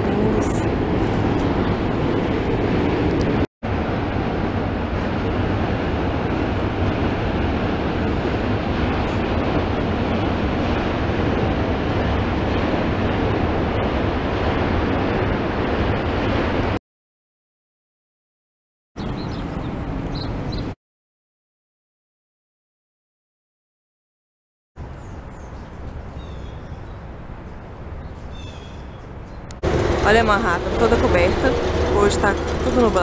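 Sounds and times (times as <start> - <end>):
city traffic: 0.0 - 16.8, 19.0 - 20.8, 24.8 - 33.0
wind on microphone: 0.0 - 16.8, 24.8 - 33.0.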